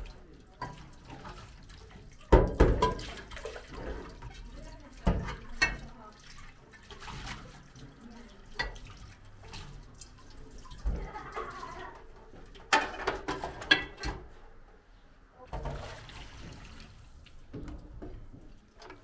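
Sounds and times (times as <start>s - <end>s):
dishes clanking against sink: 0.6s - 6.0s, 10.6s - 14.4s, 15.5s - 16.6s
tap running into sink: 2.3s - 3.3s.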